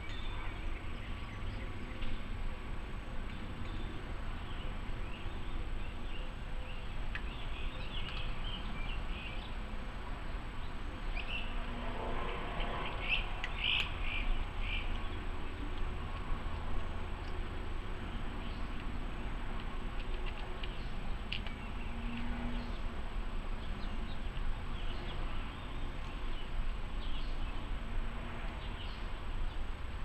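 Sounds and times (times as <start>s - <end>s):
low outdoor rumble: 0.0s - 30.0s
birds chirping: 3.3s - 9.6s, 12.4s - 15.7s.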